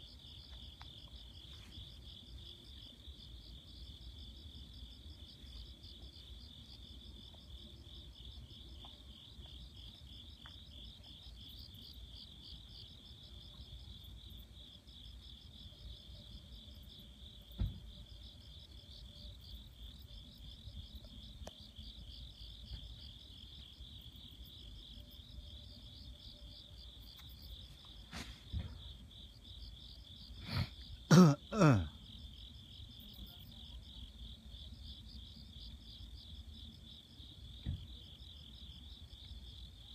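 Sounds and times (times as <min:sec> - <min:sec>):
crickets chirping: 0:00.0 - 0:39.9
person coughing: 0:30.4 - 0:31.9.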